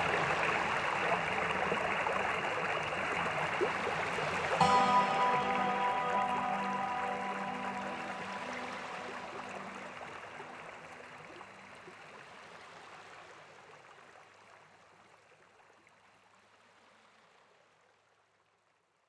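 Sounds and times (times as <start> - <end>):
soft background music: 0.0 - 11.4.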